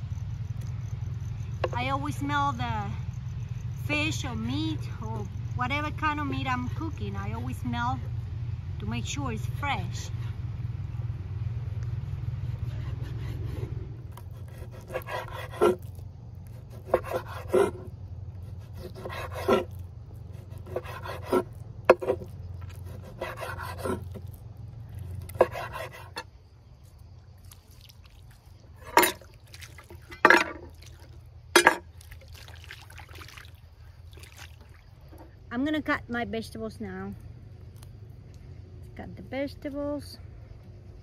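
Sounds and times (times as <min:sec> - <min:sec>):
low steady rumble: 0:00.0 - 0:41.0
knife slicing meat on wooden board: 0:14.1 - 0:15.9, 0:16.5 - 0:24.3, 0:25.2 - 0:26.2
water pouring: 0:27.4 - 0:34.8.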